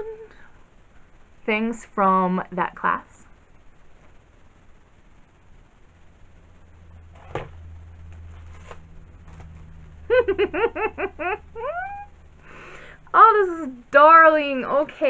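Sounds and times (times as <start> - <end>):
low hum: 0.0 - 15.0
woman laughing: 10.1 - 12.1.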